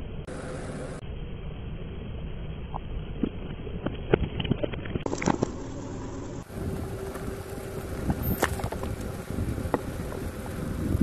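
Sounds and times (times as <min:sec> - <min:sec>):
car rumble: 0:00.0 - 0:11.0
grit crunching under tyre: 0:03.3 - 0:11.0.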